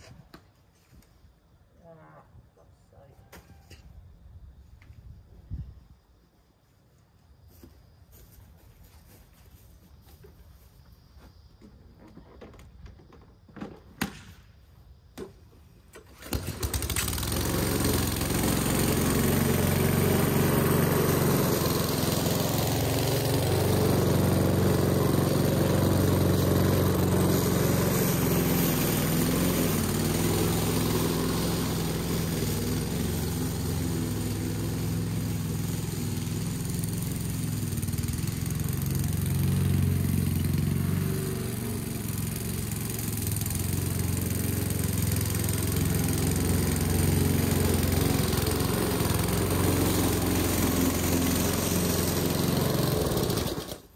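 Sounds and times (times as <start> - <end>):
lawn mower engine running: 15.5 - 53.9.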